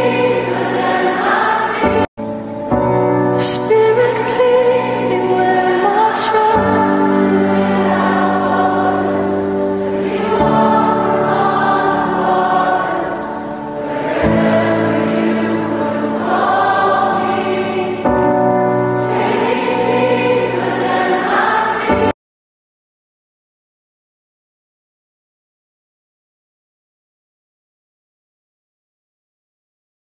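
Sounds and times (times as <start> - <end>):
choir singing hymn-like piece: 0.0 - 2.7, 3.3 - 22.2.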